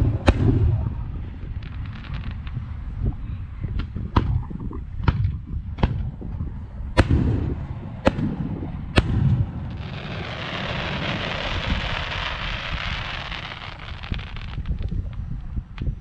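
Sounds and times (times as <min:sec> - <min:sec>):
firework shells booming: 0:00.0 - 0:02.5, 0:07.0 - 0:14.7.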